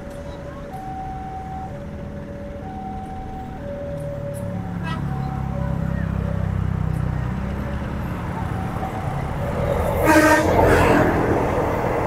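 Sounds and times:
level crossing warning alarm: 0.0 - 6.3, 7.8 - 9.4
diesel train engine approaching: 0.0 - 12.0.

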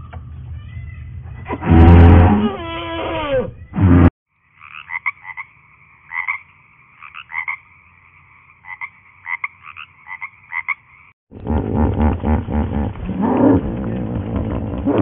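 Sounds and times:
tree frogs clucking: 4.5 - 11.1
deep animal sound: 11.3 - 15.0.

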